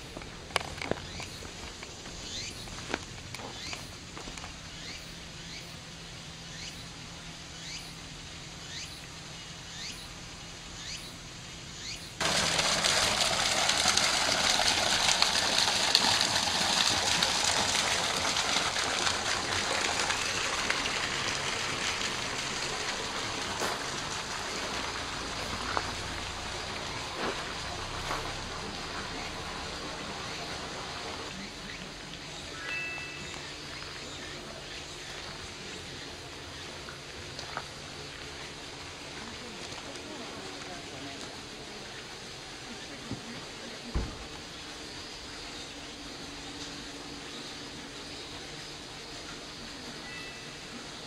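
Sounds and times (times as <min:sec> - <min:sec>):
water jetting into a pond: 0:12.2 - 0:50.9
faint rising chirps: 0:32.4 - 0:34.3.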